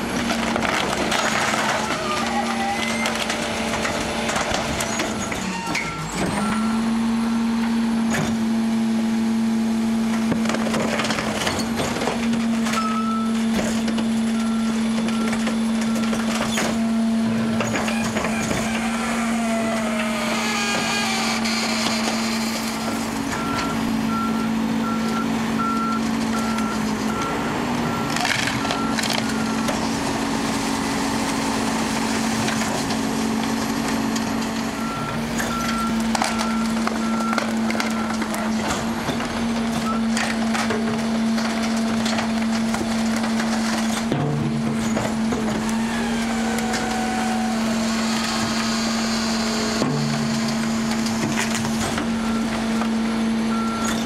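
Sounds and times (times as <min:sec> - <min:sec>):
garbage truck engine and hydraulics hum: 0:00.0 - 0:54.0.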